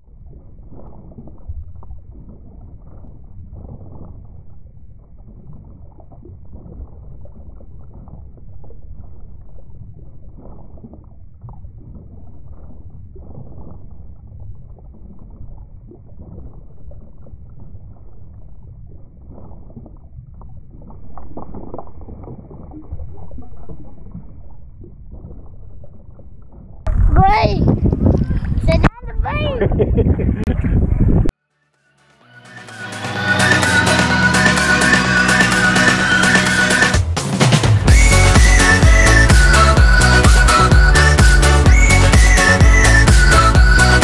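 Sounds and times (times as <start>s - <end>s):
underwater rumble of moving water: 0.0s - 28.8s.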